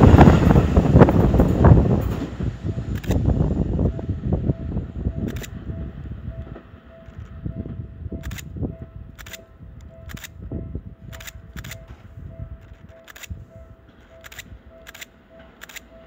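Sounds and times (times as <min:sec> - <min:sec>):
train rumble pulling away: 0:00.0 - 0:16.0
level crossing warning bell: 0:00.9 - 0:16.0
sharp clicks: 0:02.9 - 0:03.3, 0:05.2 - 0:05.6, 0:08.2 - 0:12.0, 0:12.6 - 0:16.0.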